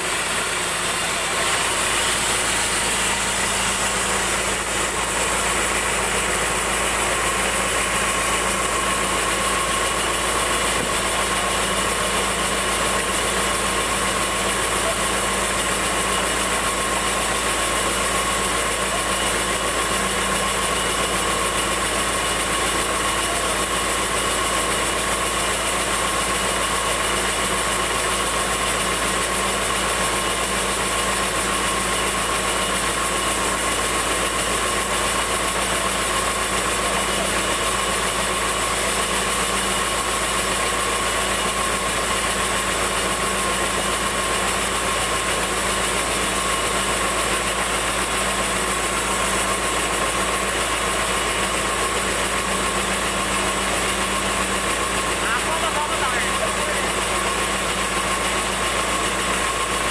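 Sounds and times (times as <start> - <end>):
band saw machine drone: 0.0 - 19.8, 51.9 - 58.3.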